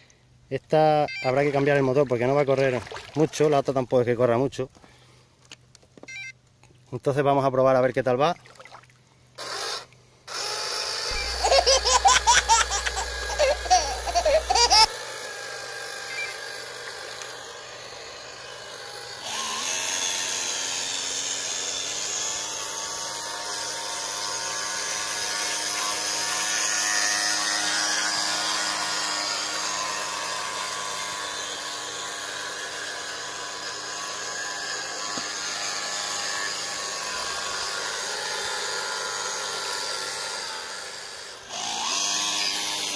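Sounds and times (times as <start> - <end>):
electric motors whining: 9.4 - 42.9.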